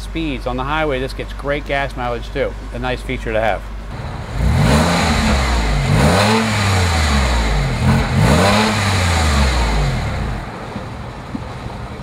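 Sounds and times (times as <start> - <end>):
car engine revving: 3.9 - 10.8.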